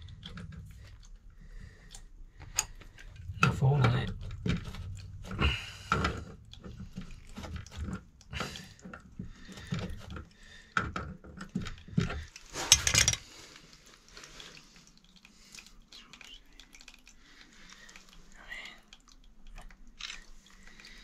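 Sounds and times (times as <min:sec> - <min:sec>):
pliers clicking and scraping on valve: 0:11.4 - 0:13.2.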